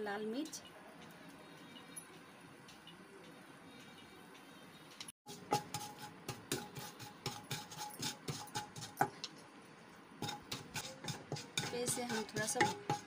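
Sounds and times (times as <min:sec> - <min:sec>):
spatula scraping pan: 0:05.3 - 0:09.2, 0:10.2 - 0:13.0
spices frying in oil: 0:10.2 - 0:13.0.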